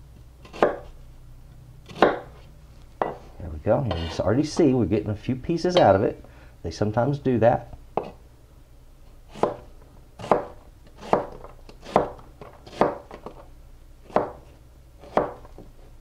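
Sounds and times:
knife cutting onion on board: 0.4s - 1.0s, 1.8s - 2.4s, 3.8s - 4.8s, 8.0s - 8.2s, 9.3s - 13.4s, 14.0s - 15.8s.

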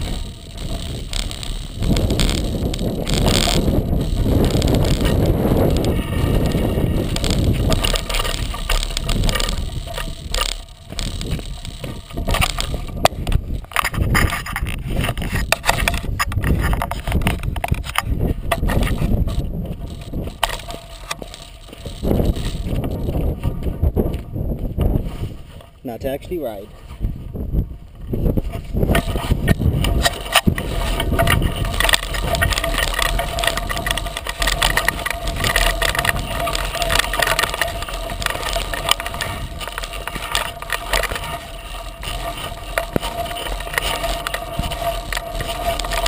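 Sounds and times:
low rumble: 0.0s - 25.8s, 27.0s - 46.0s
gravel crunching under tyre: 0.0s - 46.0s
tyre rolling on gravel trail: 0.0s - 46.0s.

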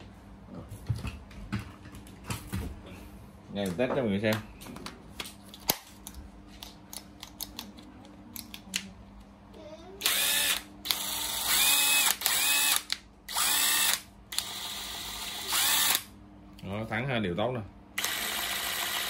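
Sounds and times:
impact driver motor whirring: 10.0s - 16.1s, 18.0s - 19.0s.

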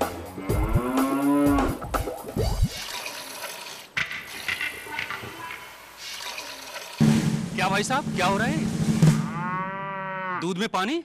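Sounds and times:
cow mooing: 0.3s - 1.8s, 9.2s - 10.4s
water pouring into bucket: 2.3s - 4.5s, 6.0s - 7.0s.

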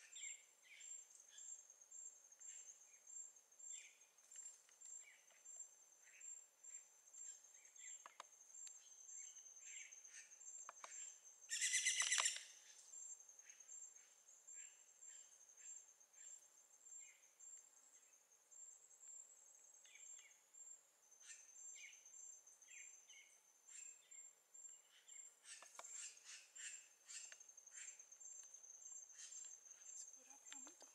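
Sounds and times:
pulsing insect trill: 4.9s - 30.9s
short bird chirps: 10.9s - 12.8s.

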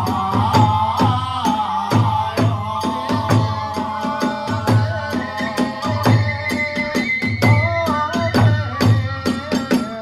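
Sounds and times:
bamboo flutes melody: 4.0s - 10.0s.

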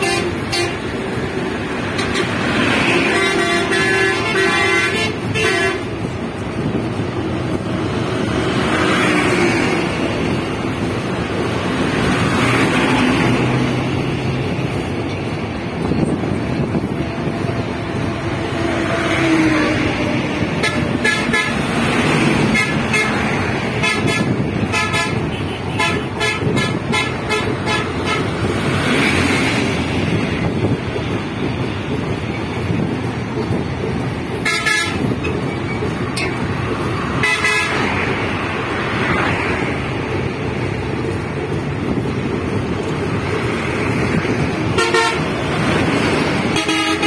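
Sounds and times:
train rushing rumble: 0.0s - 47.0s
train wheels clicking over track: 26.0s - 37.2s.

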